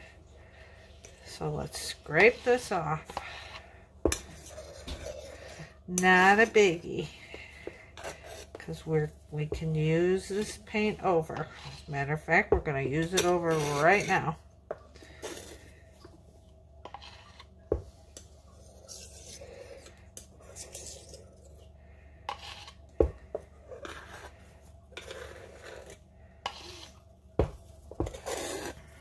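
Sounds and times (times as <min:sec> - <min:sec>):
palette knife scraping paint: 0:01.6 - 0:08.8, 0:10.2 - 0:12.1, 0:13.0 - 0:14.4, 0:16.8 - 0:17.6, 0:18.6 - 0:21.1, 0:22.3 - 0:22.8, 0:23.5 - 0:27.0, 0:27.9 - 0:29.0.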